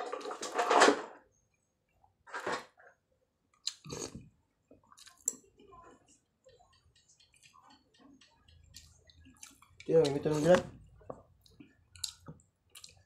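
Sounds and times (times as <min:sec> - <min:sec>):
person chewing with wet clicks: 0:03.5 - 0:13.0.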